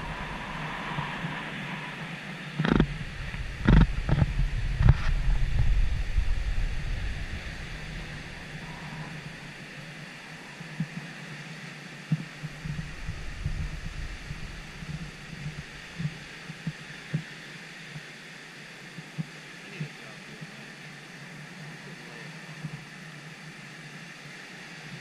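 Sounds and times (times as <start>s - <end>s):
ocean surf hissing: 0.0s - 25.0s
low thumps: 2.6s - 8.6s.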